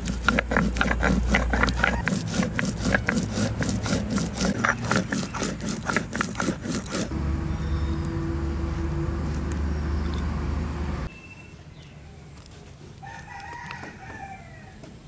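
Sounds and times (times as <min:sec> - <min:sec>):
stone scraping on stone: 0:00.0 - 0:07.2.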